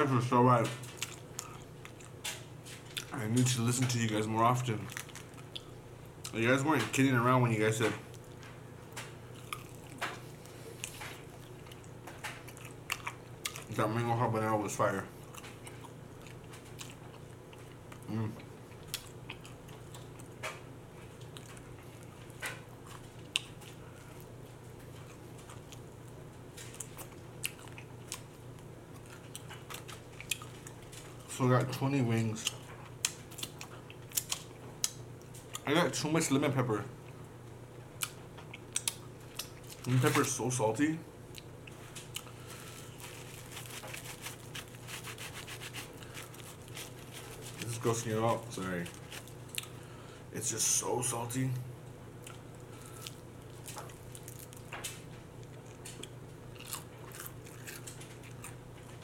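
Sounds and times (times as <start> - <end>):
faint low hum: 0.0 - 59.0
mouth smacks and chewing: 38.0 - 39.9
paper napkin rustling: 42.4 - 49.4.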